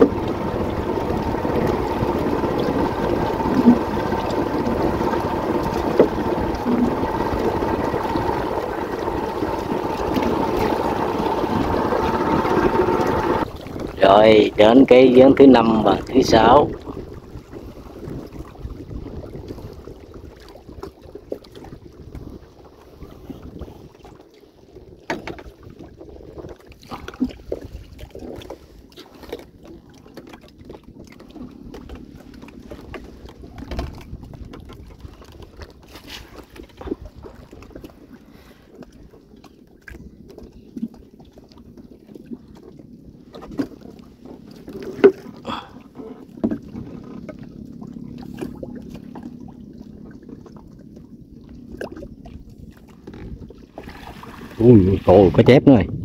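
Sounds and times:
water sloshing and splashing: 0.0 - 55.7.

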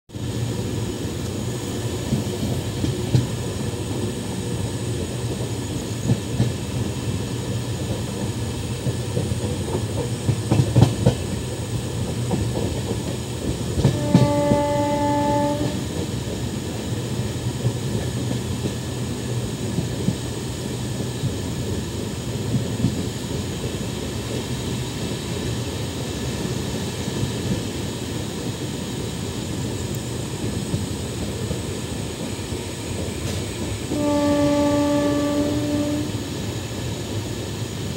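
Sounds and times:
train wheels rumbling on track: 0.1 - 37.9
locomotive horn: 13.8 - 15.9, 33.9 - 36.3.

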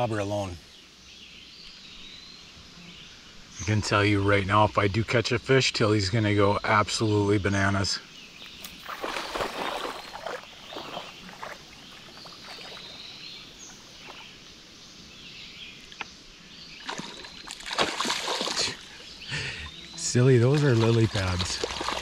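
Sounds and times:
dog splashing through water: 8.8 - 13.0, 16.8 - 18.9, 20.4 - 22.0.

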